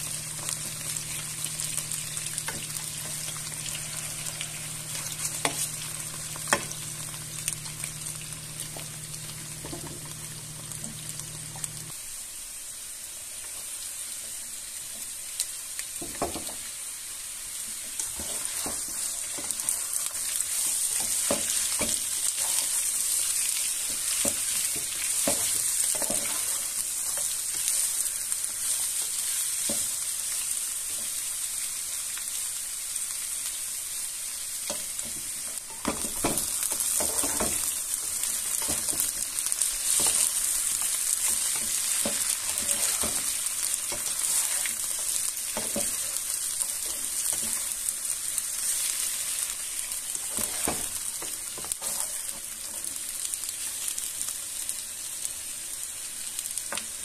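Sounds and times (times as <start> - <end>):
potatoes sizzling in oil: 0.0 - 57.0
spatula scraping and tapping pan: 2.3 - 7.8, 9.6 - 11.8, 23.8 - 27.7, 34.7 - 37.8, 39.9 - 40.4, 41.2 - 44.9, 45.5 - 46.1, 50.2 - 52.8.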